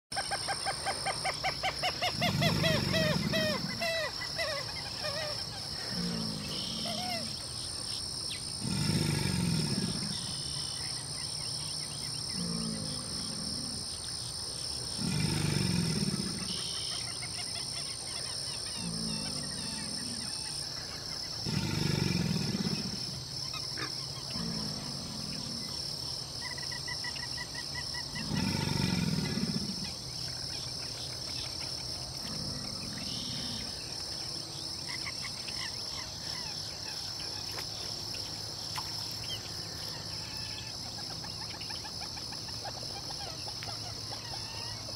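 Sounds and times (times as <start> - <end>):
alligator bellowing: 1.9 - 7.5, 8.6 - 10.9, 11.6 - 14.2, 14.9 - 17.1, 18.5 - 26.8, 27.5 - 30.8, 31.9 - 33.9.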